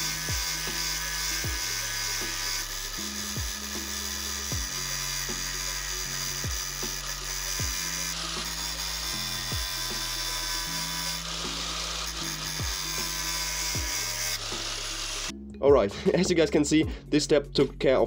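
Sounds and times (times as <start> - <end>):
angle grinder grinding steel: 0.0 - 15.3
background music with bass: 0.0 - 18.0.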